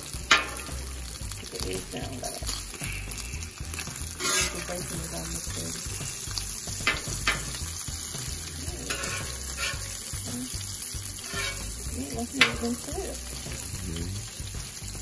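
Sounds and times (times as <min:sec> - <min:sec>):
utensil scraping cooking surface: 0:00.0 - 0:13.8
bacon sizzling on a griddle: 0:00.0 - 0:15.0.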